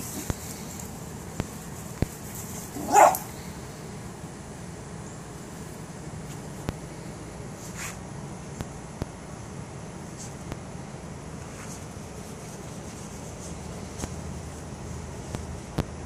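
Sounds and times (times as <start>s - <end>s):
dog yelp: 2.8s - 3.3s
small dog barking: 2.8s - 3.3s.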